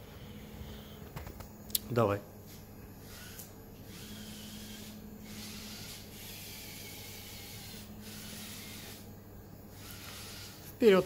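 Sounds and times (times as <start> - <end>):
low steady hum: 0.0 - 11.0
small electric motors whirring: 2.5 - 11.0.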